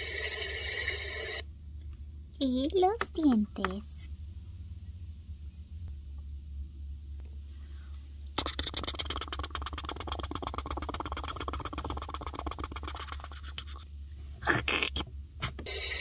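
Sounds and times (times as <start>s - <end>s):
toothbrush scrubbing: 8.4s - 13.8s.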